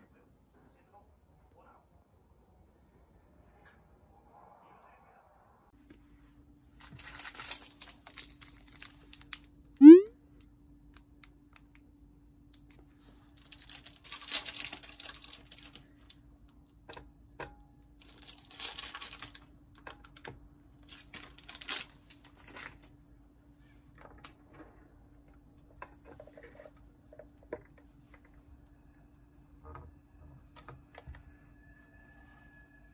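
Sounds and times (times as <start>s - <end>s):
faint steady hum: 0.0s - 32.9s
short fast-rising tone: 9.8s - 10.1s.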